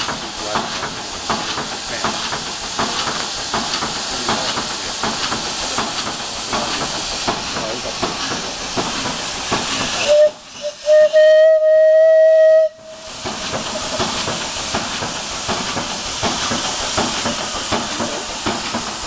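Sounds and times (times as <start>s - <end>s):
steam engine hissing: 0.0s - 19.0s
steam whistle toots and blast: 10.0s - 13.1s.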